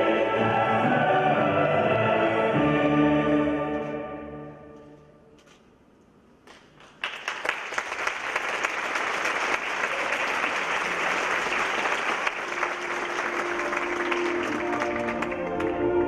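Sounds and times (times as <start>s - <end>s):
audience applause: 6.8s - 16.0s.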